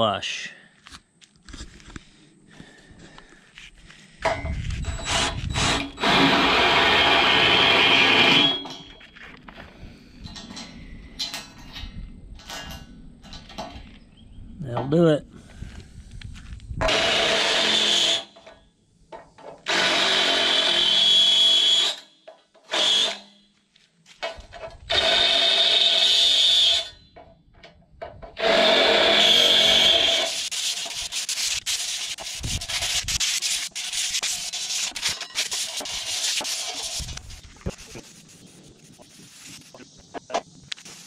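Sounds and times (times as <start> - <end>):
drill whining into steel: 4.8 - 9.0, 16.8 - 18.4, 19.6 - 22.1, 22.7 - 23.4, 24.9 - 27.1, 28.4 - 30.9.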